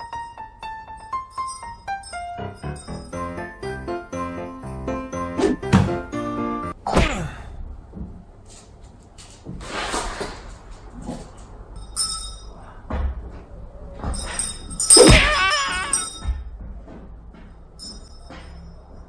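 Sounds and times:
music: 0:00.0 - 0:06.8.

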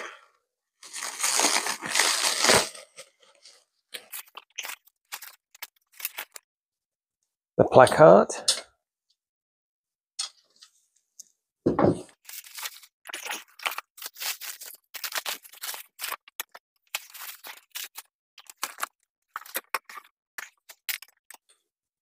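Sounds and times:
plastic wrap crinkling and tearing: 0:00.8 - 0:06.4, 0:12.1 - 0:21.5.

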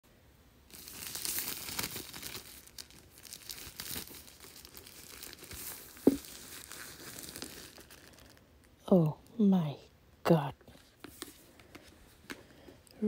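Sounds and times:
cellophane wrap crinkling and tearing: 0:00.7 - 0:08.7
box knock: 0:06.0 - 0:06.3.

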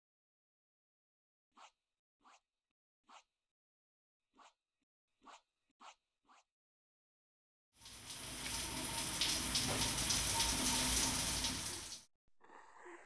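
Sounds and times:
shower head spraying water: 0:07.8 - 0:12.1.

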